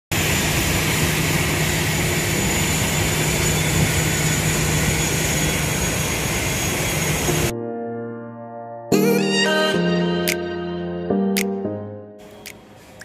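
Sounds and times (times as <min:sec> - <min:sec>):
aircraft engine drone: 0:00.1 - 0:07.5.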